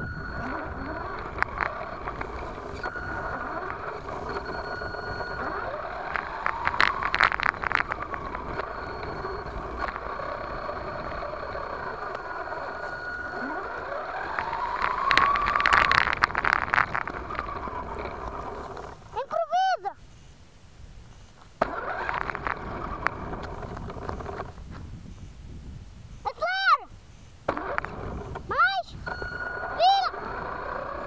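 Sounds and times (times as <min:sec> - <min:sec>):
toy truck motor whine: 0:00.0 - 0:19.2, 0:21.6 - 0:25.3, 0:27.3 - 0:31.0
tyres crackling on dirt: 0:00.0 - 0:20.0, 0:20.9 - 0:25.3, 0:27.4 - 0:31.0
grass brushing plastic body: 0:00.4 - 0:11.0, 0:12.2 - 0:19.5.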